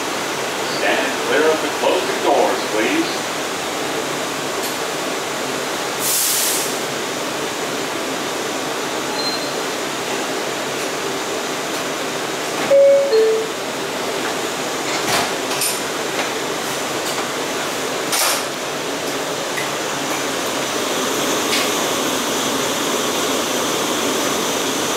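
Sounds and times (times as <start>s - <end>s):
subway car rushing noise: 0.0s - 24.9s
two-note chime: 12.7s - 13.5s.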